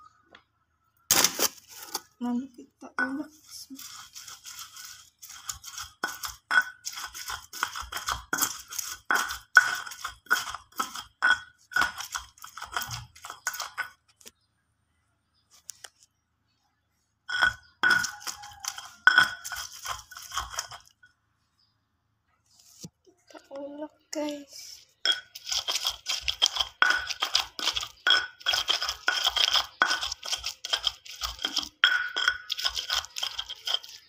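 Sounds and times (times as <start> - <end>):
stone pestle grinding in mortar: 3.3 - 14.0, 17.3 - 21.0, 25.0 - 34.0.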